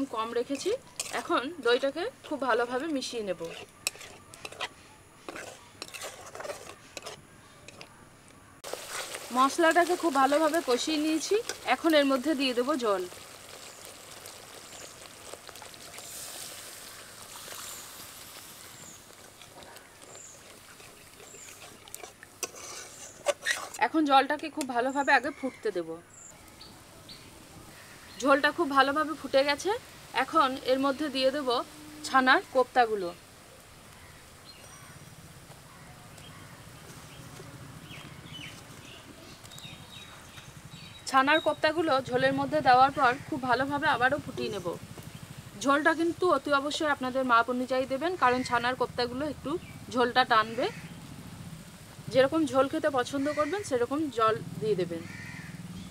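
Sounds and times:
paste sizzling in a pan: 0:00.0 - 0:07.2, 0:08.6 - 0:23.8
small birds chirping: 0:09.4 - 0:23.6, 0:24.6 - 0:31.4, 0:33.5 - 0:55.9
small bird chirping: 0:17.0 - 0:22.0, 0:34.0 - 0:41.8.

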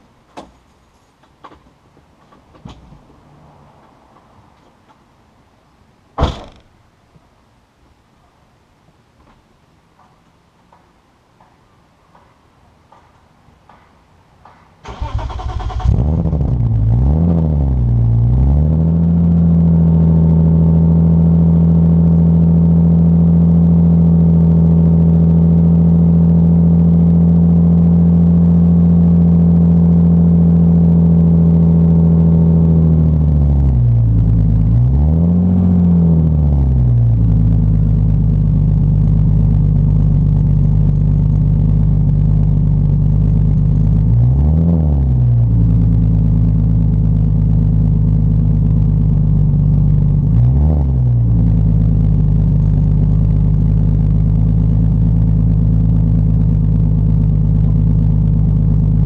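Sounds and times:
car engine idling: 0:14.8 - 0:35.0, 0:35.6 - 0:59.0
car engine starting: 0:14.8 - 0:59.0
car engine revving: 0:14.9 - 0:25.0, 0:25.8 - 0:59.0.

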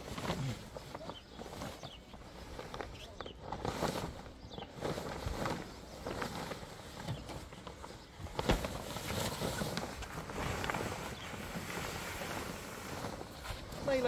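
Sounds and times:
fabric cover rustling: 0:00.0 - 0:14.0.

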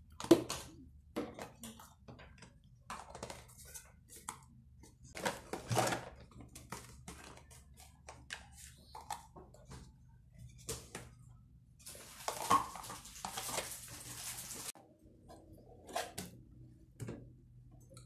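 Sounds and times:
plastic containers clicking and knocking: 0:00.0 - 0:10.0.

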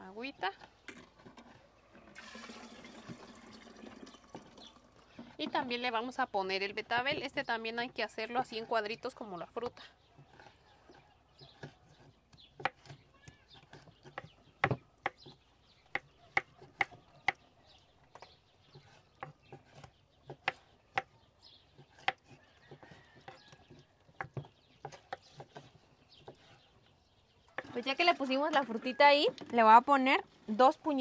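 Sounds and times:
knives chopping on wooden boards: 0:11.4 - 0:17.4, 0:18.1 - 0:21.1, 0:21.7 - 0:25.6.

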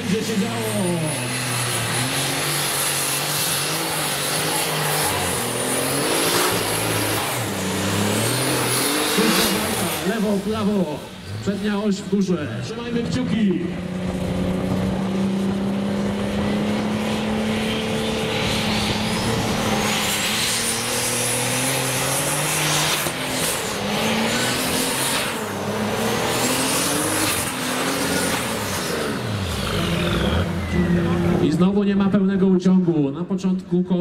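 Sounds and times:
tractor engine at full throttle: 0:00.0 - 0:32.6
high whistle: 0:30.4 - 0:31.2.

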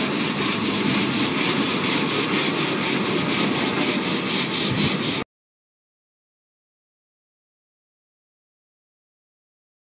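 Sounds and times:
steam locomotive hissing rhythmically: 0:00.0 - 0:05.2.

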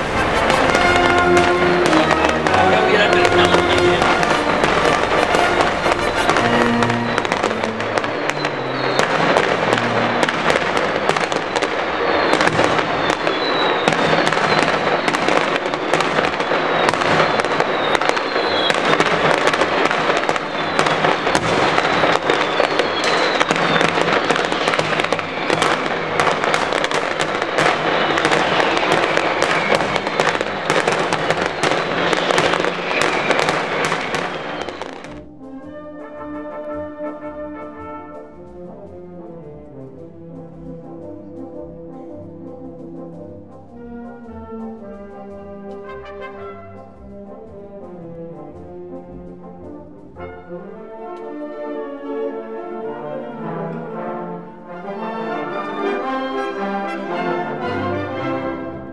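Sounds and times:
falling whistles: 0:00.0 - 0:36.2
firecracker barrage: 0:00.0 - 0:41.0, 0:42.8 - 0:47.9.

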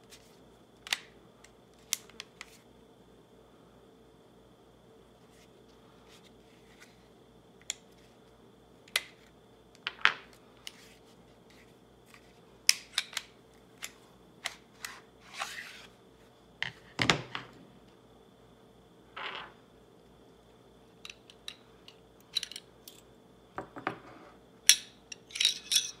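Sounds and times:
steel part set down on table: 0:23.6 - 0:24.1.

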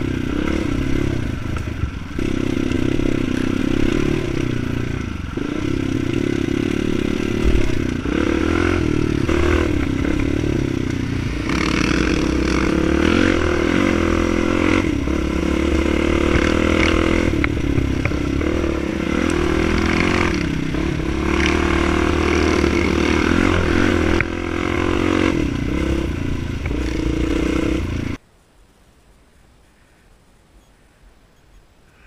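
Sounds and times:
bike rattling: 0:00.0 - 0:28.2
dirt bike engine revving: 0:00.0 - 0:28.2.

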